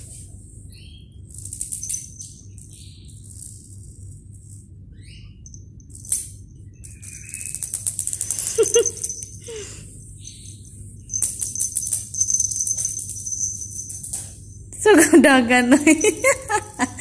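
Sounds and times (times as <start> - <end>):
rapid rattling and jingling: 5.4 - 14.7, 15.8 - 17.0.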